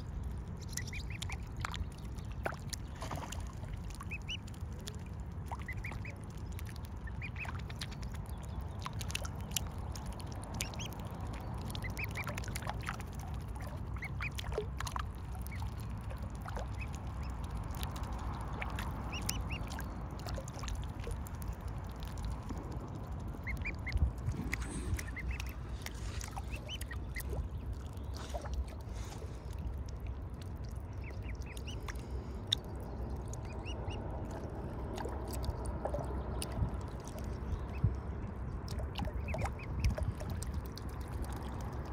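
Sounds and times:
steady low rumble: 0.0s - 41.9s
cygnets peeping: 0.6s - 3.2s, 4.0s - 4.6s, 5.5s - 12.6s, 13.4s - 14.6s, 15.4s - 29.8s, 30.8s - 34.0s, 39.0s - 40.7s.

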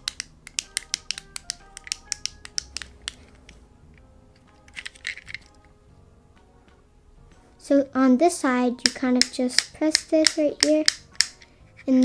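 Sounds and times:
fidget pad button clicks: 0.0s - 3.2s
soft background music: 0.0s - 12.0s.

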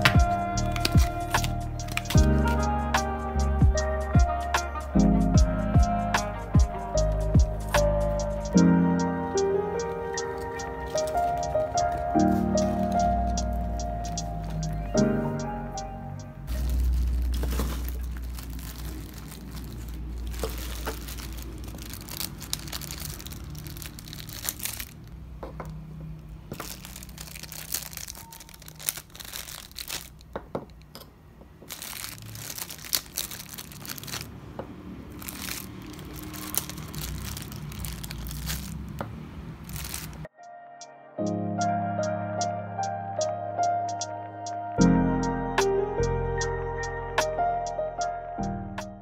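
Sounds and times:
plastic bags crinkling: 0.0s - 2.6s, 10.2s - 14.9s, 16.5s - 25.8s, 26.5s - 31.0s, 31.6s - 40.3s.

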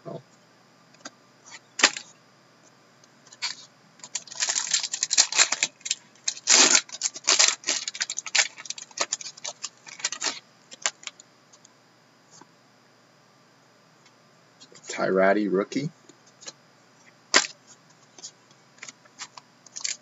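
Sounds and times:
wrapper crinkling and tearing: 3.4s - 11.1s, 18.8s - 20.0s.

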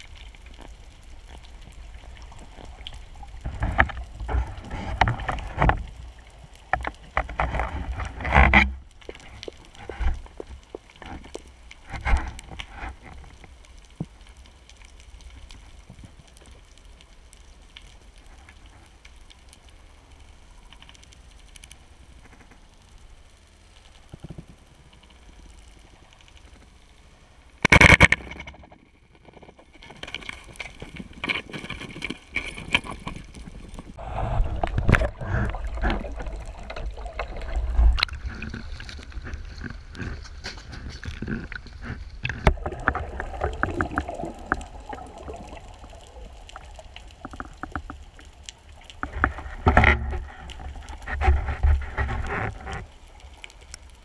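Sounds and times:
water splashing and bubbling: 0.0s - 22.4s, 24.0s - 54.0s.

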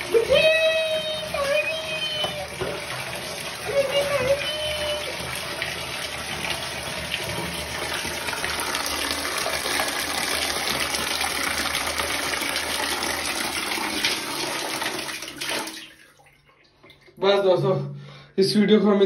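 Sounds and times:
water splashing into a tub: 0.0s - 17.4s.

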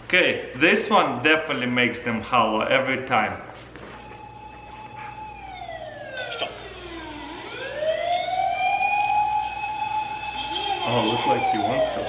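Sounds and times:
siren wail through speakers: 3.8s - 12.0s.

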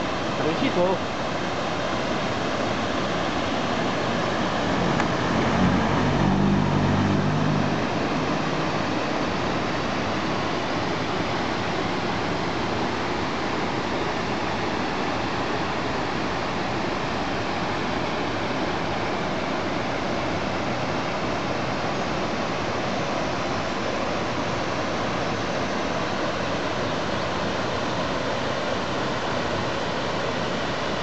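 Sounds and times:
river rushing over rocks: 0.0s - 31.0s
low hum: 3.8s - 9.5s.

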